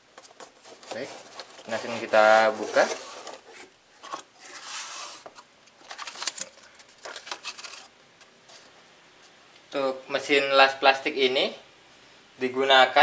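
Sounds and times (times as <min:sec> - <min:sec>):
cardboard and paper rustling: 0:00.2 - 0:07.9.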